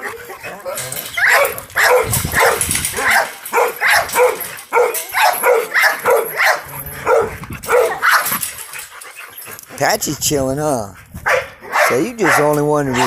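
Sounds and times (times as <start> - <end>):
dog barking: 1.2 - 8.4, 11.2 - 13.0.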